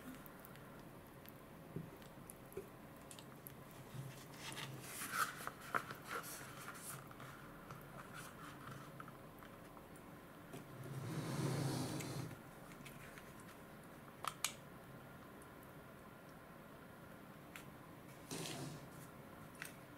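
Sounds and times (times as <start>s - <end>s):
small clicks and rustles: 0.0s - 10.7s, 12.3s - 14.6s, 17.5s - 19.9s.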